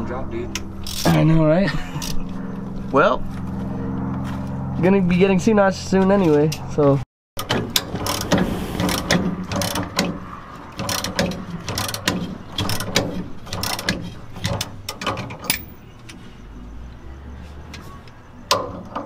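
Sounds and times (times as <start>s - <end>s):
ratchet wrench clicking: 0.8s - 1.1s.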